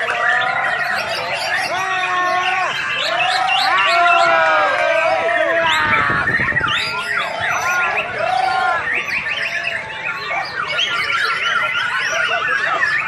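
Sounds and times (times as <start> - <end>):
bird singing whistled song: 0.0 - 4.3, 5.7 - 13.0.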